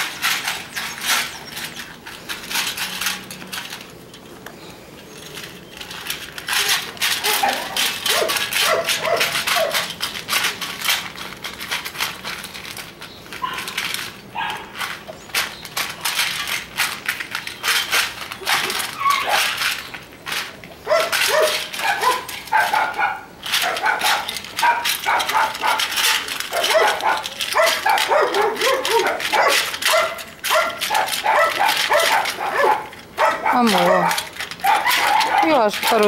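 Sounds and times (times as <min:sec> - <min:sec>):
kibble crunching in metal bowl: 0:00.0 - 0:36.0
dog barks and yips: 0:06.6 - 0:09.9, 0:13.4 - 0:13.8, 0:14.4 - 0:14.7, 0:18.4 - 0:19.7, 0:20.8 - 0:36.0.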